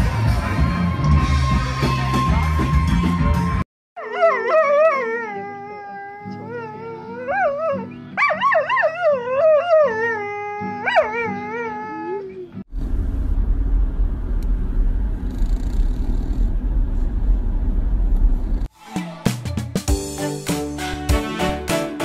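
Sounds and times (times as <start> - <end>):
dog howling: 4.0 - 12.6
steady low rumble: 12.7 - 18.7.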